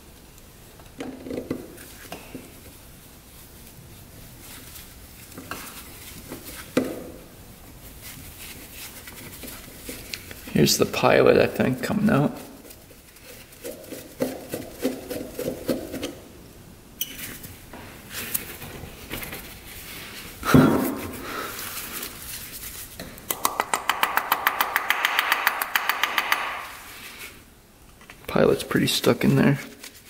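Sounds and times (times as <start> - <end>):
loud knock: 23.3 - 26.8
rapid even clicking: 23.3 - 26.8.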